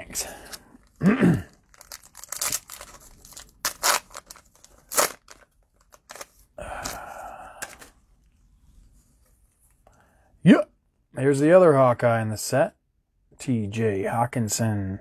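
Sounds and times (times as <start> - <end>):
plastic wrapper tearing and crinkling: 0.8 - 6.4.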